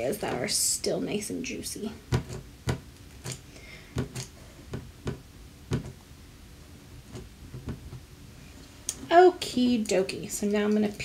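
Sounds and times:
ink pad tapping on rubber stamp: 0:04.0 - 0:06.0.

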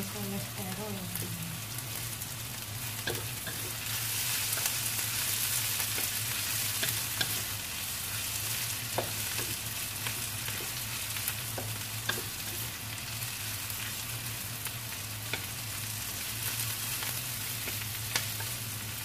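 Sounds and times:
aromatics sizzling in hot oil: 0:00.0 - 0:19.0
spatula scraping a wok: 0:02.9 - 0:12.8.

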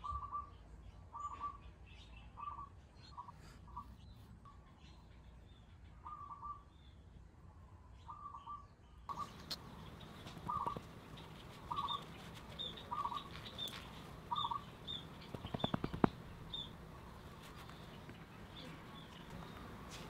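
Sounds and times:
bird chirping: 0:00.0 - 0:20.0
sharp clicks: 0:14.9 - 0:16.7.

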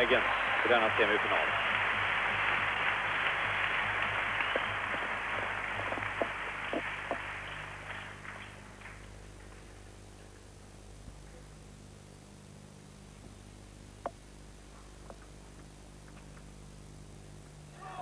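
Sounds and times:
crowd noise: 0:00.0 - 0:08.2.

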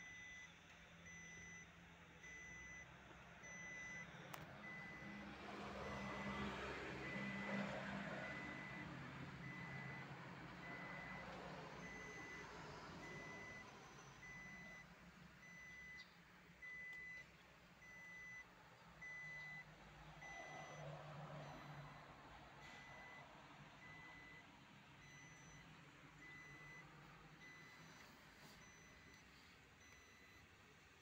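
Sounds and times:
electronic warning beeps: 0:00.0 - 0:00.5, 0:01.1 - 0:05.2, 0:05.8 - 0:23.2, 0:23.8 - 0:30.5.

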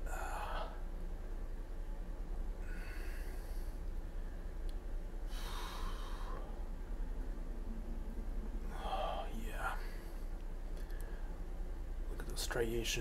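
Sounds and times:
low steady hum: 0:00.0 - 0:13.0
man's hissing breaths: 0:05.3 - 0:06.7.

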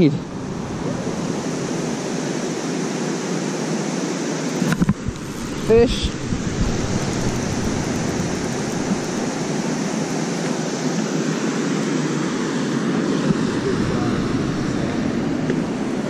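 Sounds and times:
water rushing through spillway: 0:00.0 - 0:11.4.

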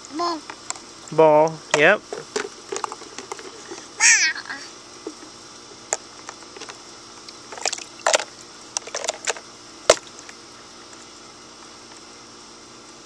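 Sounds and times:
water splashing in pool: 0:07.4 - 0:10.4.

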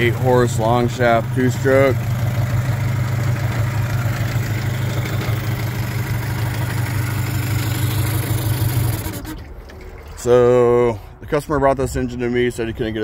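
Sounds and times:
outboard motor idling: 0:00.0 - 0:10.8.

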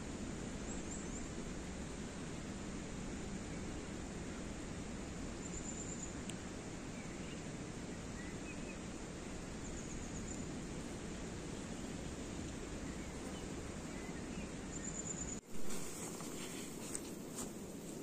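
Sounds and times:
faint bird chirps: 0:00.6 - 0:01.4, 0:05.3 - 0:17.0.

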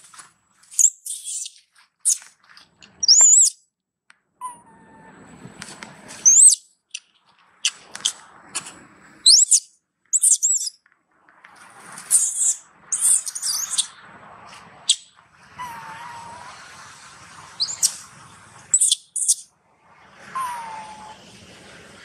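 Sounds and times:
short sharp squeaks: 0:00.7 - 0:03.6, 0:04.4 - 0:10.8, 0:11.9 - 0:14.0
young monkey squealing: 0:00.8 - 0:02.2, 0:03.0 - 0:03.6, 0:06.2 - 0:06.6, 0:09.2 - 0:10.7, 0:12.1 - 0:14.0, 0:14.9 - 0:16.5, 0:17.6 - 0:18.0, 0:18.7 - 0:19.4, 0:20.3 - 0:21.2.

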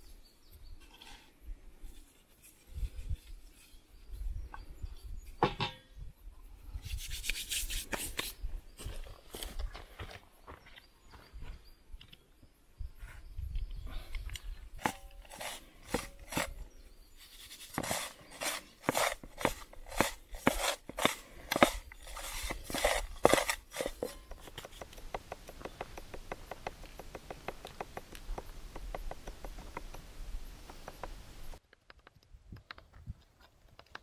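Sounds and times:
sharp knocks and clicks: 0:24.2 - 0:33.0.

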